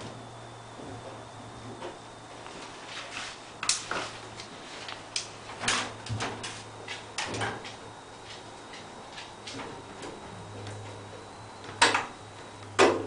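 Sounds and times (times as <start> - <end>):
low steady hum: 0.0 - 13.0
tumble dryer clunks and clicks: 5.2 - 10.9, 11.6 - 13.0.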